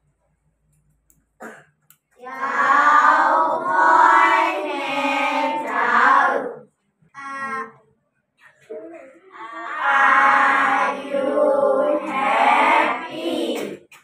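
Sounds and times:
children chanting in unison: 2.2 - 6.7, 9.3 - 13.9.

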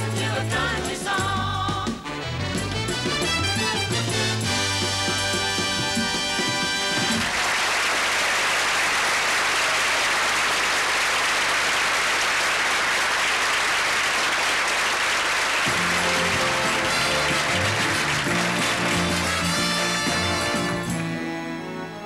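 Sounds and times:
music: 0.0 - 7.4, 15.6 - 22.0
audience applauding: 6.1 - 21.2.

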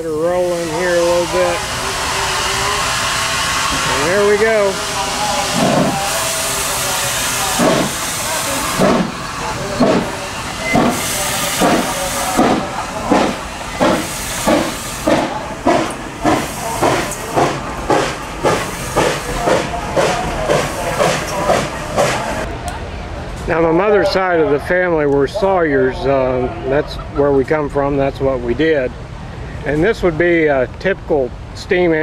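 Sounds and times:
steam hissing: 0.0 - 22.5
steam locomotive exhaust chuffs: 0.0 - 22.5.

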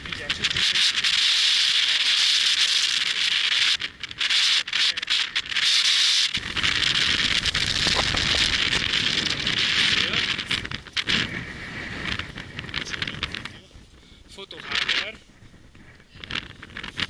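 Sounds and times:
loud steady hissing: 0.0 - 15.2
low rumble: 6.3 - 16.8.

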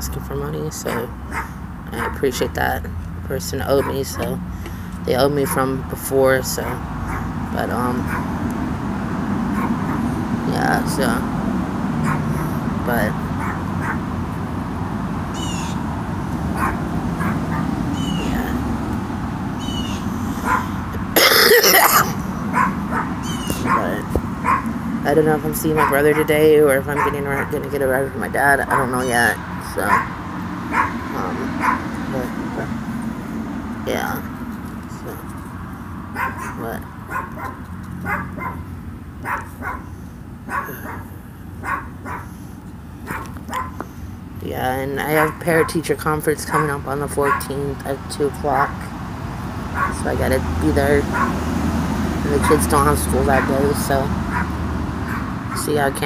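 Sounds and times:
dog barking: 0.9 - 2.2, 3.8 - 4.3, 6.7 - 7.4, 8.0 - 8.3, 9.5 - 10.1, 12.0 - 12.6, 13.4 - 14.0, 16.6 - 17.7, 20.4 - 20.8, 22.5 - 24.7, 25.8 - 26.3, 27.0 - 27.5, 29.9 - 31.0, 31.6 - 31.9, 36.2 - 39.9, 40.5 - 42.4, 43.0 - 43.8, 45.2 - 45.4, 46.5 - 47.4, 49.7 - 50.0, 51.1 - 51.4, 52.4 - 52.6, 54.3 - 55.3
woman coughing: 21.2 - 22.3.

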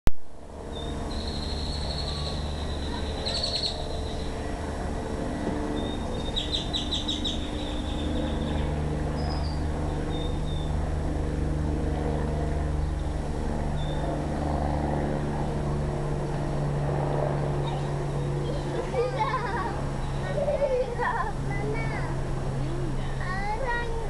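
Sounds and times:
low mechanical hum: 0.2 - 24.0
bird chirping: 0.7 - 4.4, 5.8 - 10.8.

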